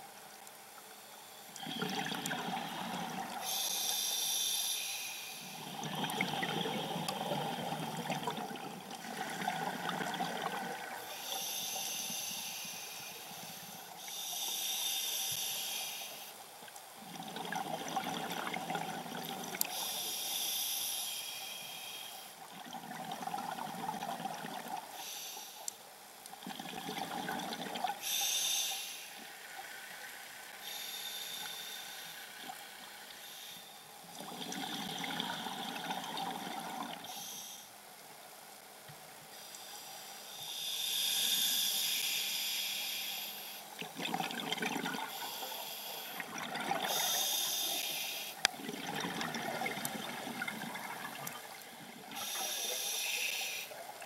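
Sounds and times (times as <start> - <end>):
regulator hissing inhalations: 3.4 - 5.6, 11.1 - 16.4, 19.6 - 22.4, 25.0 - 25.7, 28.0 - 29.3, 30.6 - 32.5, 37.0 - 37.7, 39.3 - 43.8, 45.0 - 48.5, 52.1 - 53.8.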